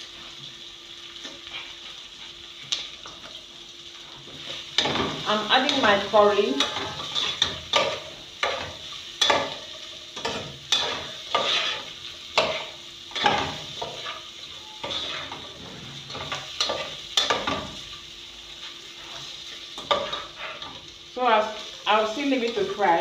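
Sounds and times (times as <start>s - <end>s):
chicken sizzling: 0.0s - 23.0s
utensil scraping a pot: 10.7s - 11.9s, 12.5s - 16.9s.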